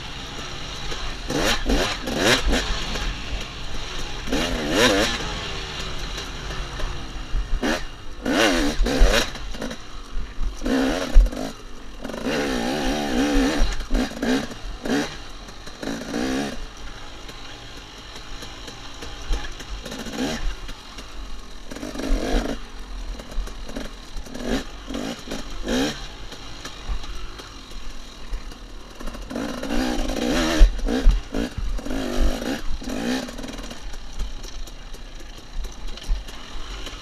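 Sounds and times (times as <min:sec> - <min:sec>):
dirt bike engine revving: 0:00.0 - 0:37.0.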